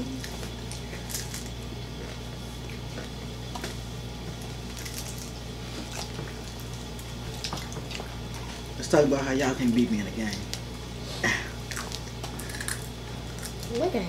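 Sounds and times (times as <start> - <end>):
people chewing food: 0.0 - 14.0
steady low hum: 0.0 - 14.0.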